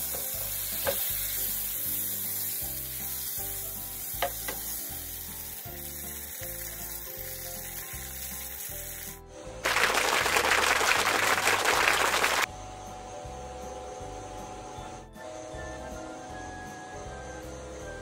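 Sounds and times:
steak sizzling in a pan: 0.0s - 10.9s.

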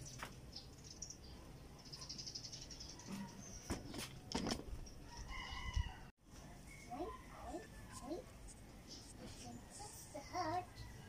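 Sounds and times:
faint high chirping: 0.0s - 3.8s.

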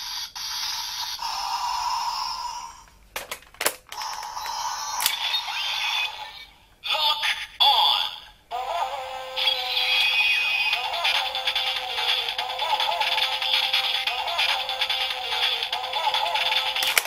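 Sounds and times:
sharp plastic clicks: 3.2s - 4.4s, 16.8s - 17.0s
tinny toy standby music: 8.5s - 17.0s.

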